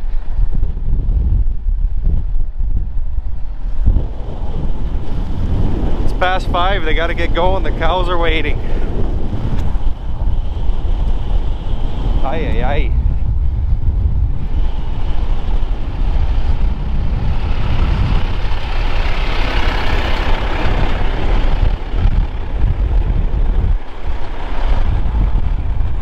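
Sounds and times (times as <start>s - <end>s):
wind rumble on microphone: 0.0s - 26.0s
tractor diesel engine running: 14.5s - 25.8s.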